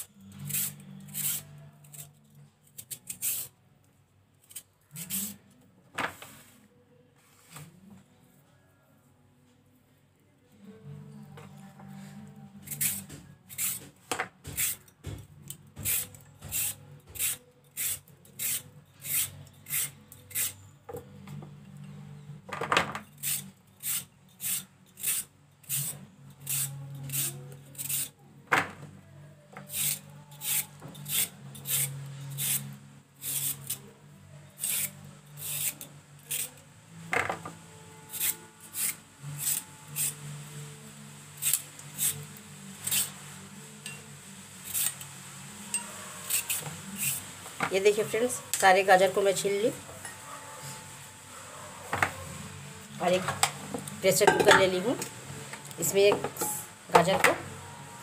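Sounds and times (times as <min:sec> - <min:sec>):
peeler scraping carrot: 0:00.0 - 0:03.5, 0:04.4 - 0:05.4, 0:12.6 - 0:13.9, 0:15.8 - 0:20.6, 0:23.1 - 0:28.1, 0:29.6 - 0:33.9, 0:34.5 - 0:36.6, 0:38.1 - 0:40.2, 0:41.4 - 0:43.2, 0:44.6 - 0:45.1, 0:46.1 - 0:47.2.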